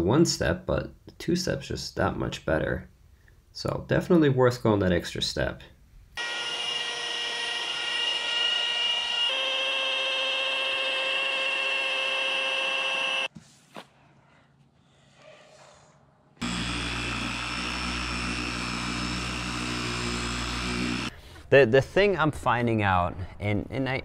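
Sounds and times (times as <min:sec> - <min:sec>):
deeper polisher running: 0:06.2 - 0:13.3, 0:16.4 - 0:21.1
machine polisher whining: 0:06.2 - 0:13.3, 0:16.4 - 0:21.1.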